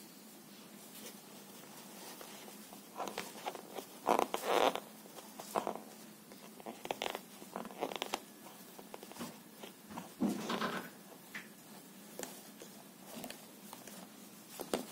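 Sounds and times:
scratchy rustles on paper: 0:00.8 - 0:10.2.

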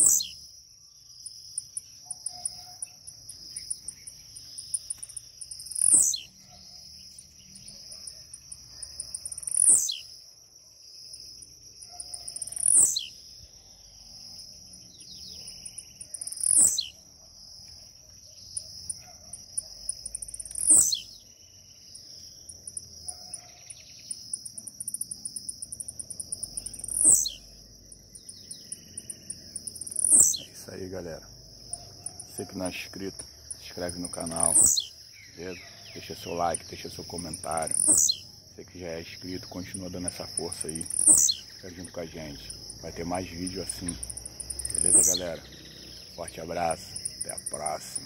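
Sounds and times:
high insect trill: 0:00.0 - 0:48.0
bird buzzy down-sweeping song: 0:26.4 - 0:30.6.

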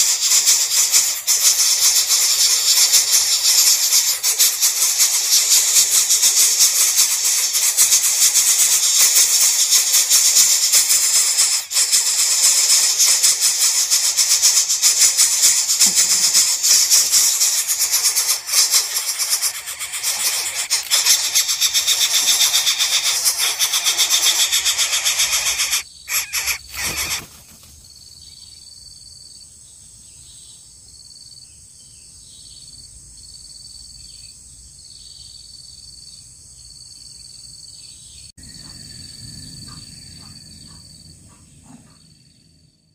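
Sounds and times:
chicks begging with rasping hiss: 0:00.0 - 0:27.8, 0:38.4 - 0:42.3
cricket chirping: 0:00.0 - 0:42.9.

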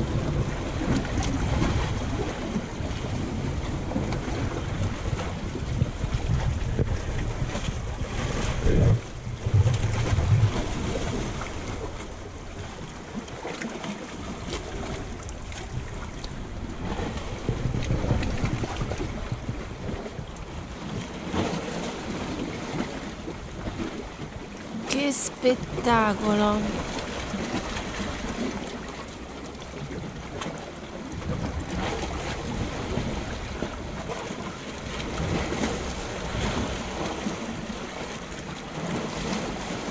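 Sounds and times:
wind buffeting microphone: 0:00.0 - 0:24.9, 0:26.4 - 0:39.9
waves lapping on rocks: 0:00.0 - 0:39.9.

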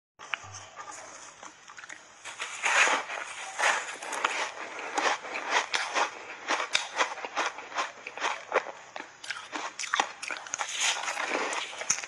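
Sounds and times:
crunchy chewing of ice: 0:00.3 - 0:12.0.

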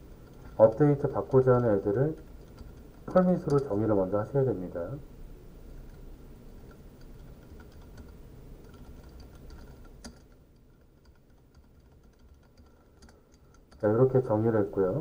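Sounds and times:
keyboard keys clicking: 0:00.1 - 0:03.8, 0:06.6 - 0:14.0.

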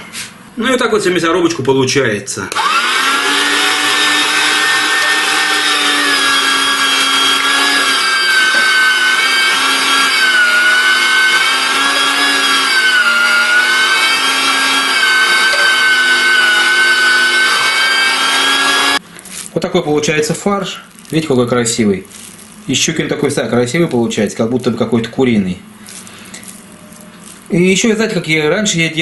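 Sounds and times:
electric meat grinder whining: 0:02.5 - 0:19.0.

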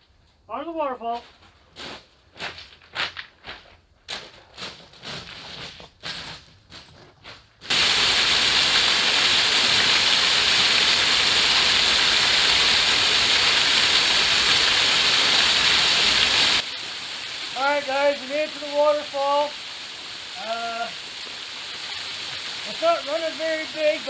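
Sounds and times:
footsteps crunching on cobbles: 0:01.2 - 0:07.7
waterfall splashing onto rocks: 0:07.7 - 0:24.0.

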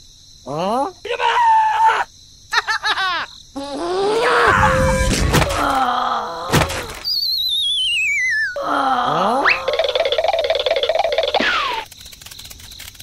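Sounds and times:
cartoon groan: 0:03.6 - 0:07.0, 0:08.6 - 0:09.9
crash of thuds: 0:04.5 - 0:05.8, 0:06.5 - 0:07.1
sharp thump: 0:04.9 - 0:05.7.

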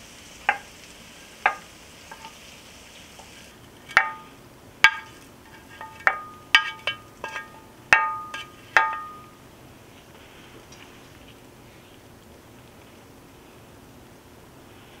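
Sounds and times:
wooden spatula knocking metal pan: 0:00.5 - 0:00.7, 0:01.4 - 0:02.4, 0:03.9 - 0:09.4.

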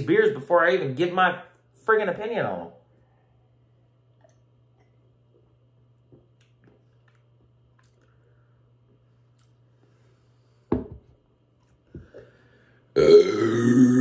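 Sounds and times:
low steady hum: 0:00.0 - 0:14.0
man sipping and tasting: 0:03.9 - 0:10.4
lip smacks: 0:06.0 - 0:08.3.

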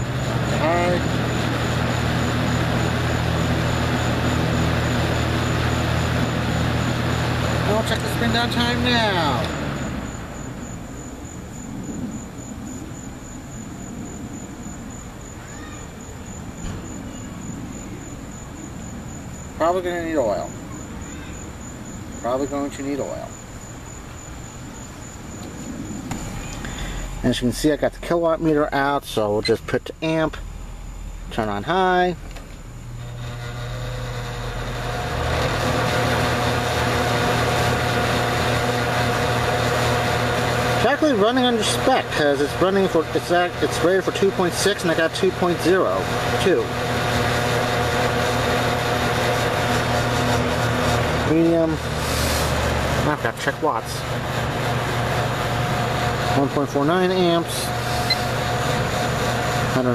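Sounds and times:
box fan running down: 0:00.0 - 0:59.9.

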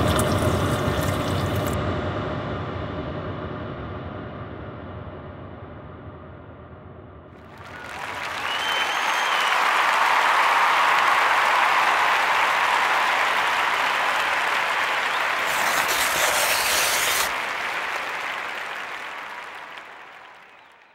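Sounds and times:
crowd applauding: 0:07.4 - 0:20.9.

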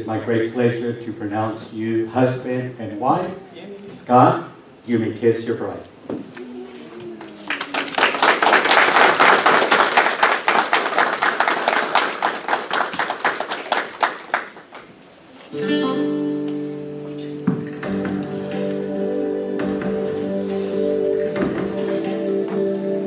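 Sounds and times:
people applauding: 0:07.2 - 0:14.9
music with sustained notes: 0:15.6 - 0:23.0.

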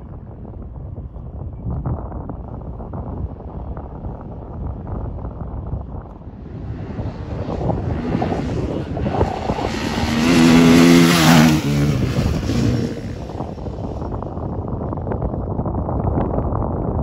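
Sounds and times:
dirt bike engine accelerating past: 0:06.3 - 0:14.2.

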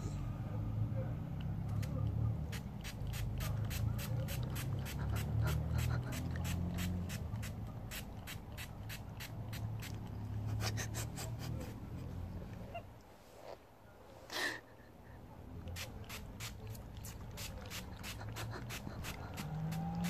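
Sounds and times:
spray bottle squirts: 0:02.5 - 0:10.0.

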